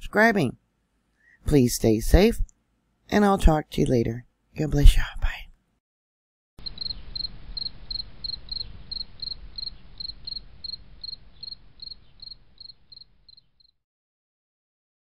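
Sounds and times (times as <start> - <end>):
cricket chirping: 6.6 - 13.8.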